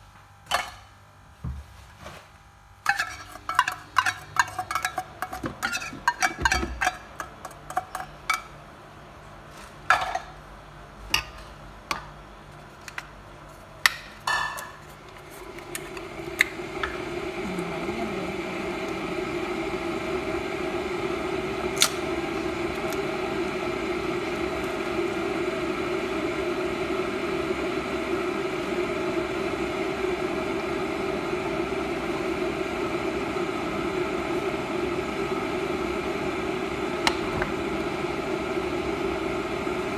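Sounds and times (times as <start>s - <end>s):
steady machine hum: 0.0s - 39.9s.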